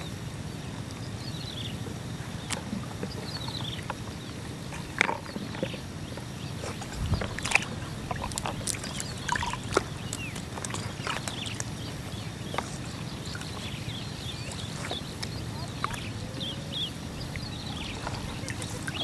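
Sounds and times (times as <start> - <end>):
steady low rumble: 0.0 - 19.0
water sloshing and splashing: 2.2 - 19.0.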